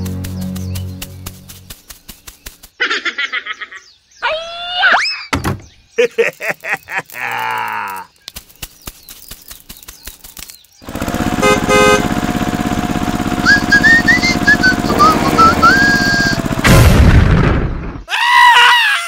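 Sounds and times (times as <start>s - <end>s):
sharp ticks: 0.0s - 2.8s, 8.2s - 11.1s
tractor engine running: 0.0s - 2.8s, 9.1s - 17.7s
whistled tune: 13.4s - 16.4s.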